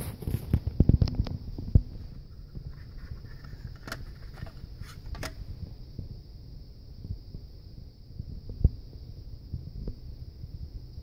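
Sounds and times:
hand movement rumble: 0.7 - 5.8.

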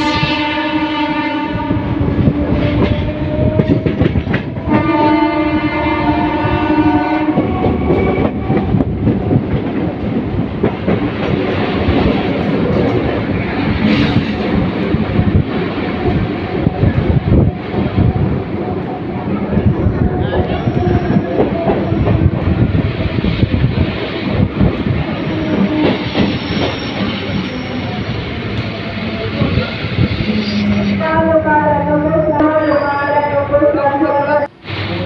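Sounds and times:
train horn blasts: 0.0 - 8.6
train wheels rattling on rails: 1.5 - 31.2.

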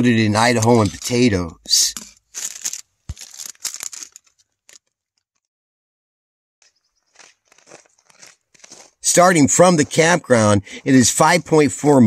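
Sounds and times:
plastic packaging crinkling and tearing: 2.2 - 5.0, 7.1 - 9.0.

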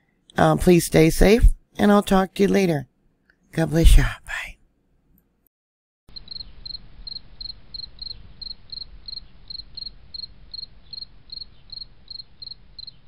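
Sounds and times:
insect chirping: 6.1 - 13.0.

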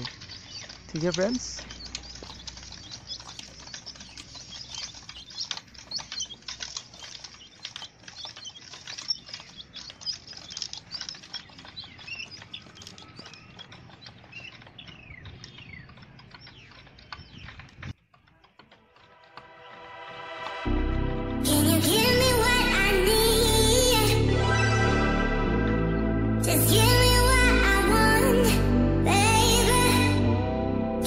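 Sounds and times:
chicks scratching in bedding: 0.0 - 19.3
chicks peeping: 0.0 - 19.4.

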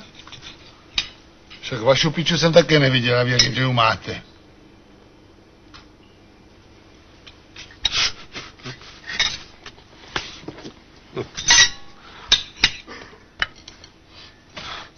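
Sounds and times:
dishes and cutlery clattering: 11.4 - 13.7.

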